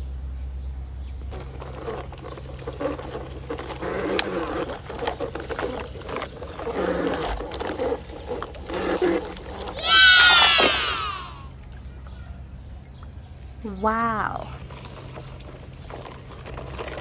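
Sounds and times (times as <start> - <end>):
toy truck sloshing through water: 1.3 - 12.0, 14.6 - 17.0.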